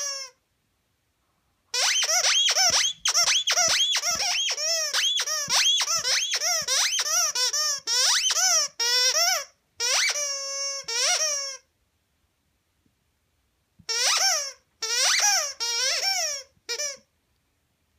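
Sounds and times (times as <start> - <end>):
squeaky toy squeaking: 0.0 - 0.4, 1.7 - 11.7, 13.9 - 17.1.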